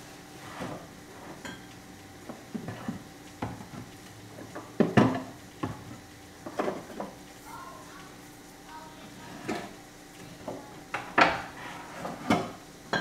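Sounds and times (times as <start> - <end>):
dishes clattering in cabinet: 11.0 - 13.0.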